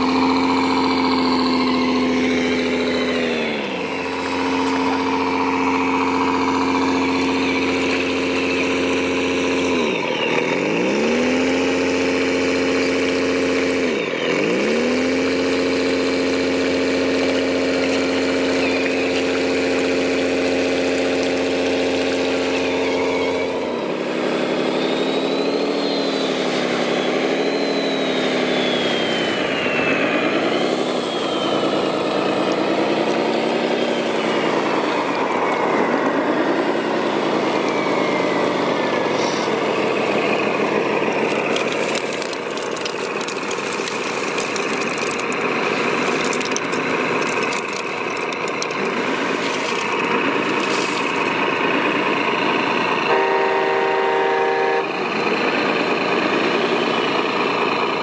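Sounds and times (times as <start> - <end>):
model truck engine droning: 0.0 - 58.0
model wheel loader engine: 0.0 - 58.0
stones crackling: 41.0 - 51.6.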